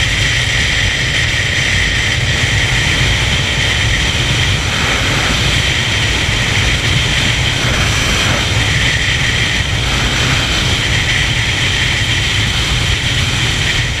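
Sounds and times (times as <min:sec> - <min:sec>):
motorcycle engine drone: 0:00.0 - 0:14.0
wind buffeting microphone: 0:00.0 - 0:14.0.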